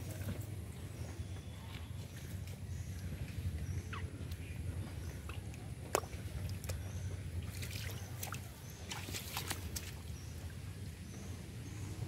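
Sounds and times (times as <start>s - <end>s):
hand sloshing through muddy water: 7.4s - 10.2s
small splashes: 7.4s - 10.2s.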